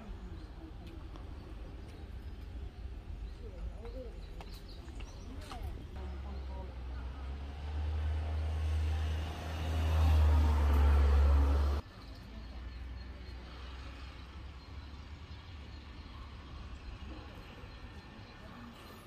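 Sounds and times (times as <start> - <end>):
faint outdoor background: 0.0 - 19.0
vehicle engine rumble passing: 5.9 - 19.0.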